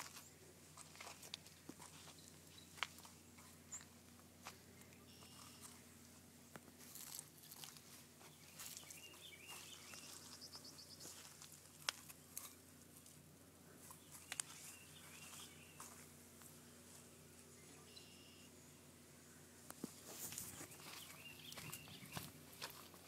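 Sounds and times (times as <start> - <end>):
distant bird chirps: 4.6 - 6.0, 7.4 - 11.4, 13.8 - 19.4, 20.5 - 22.4.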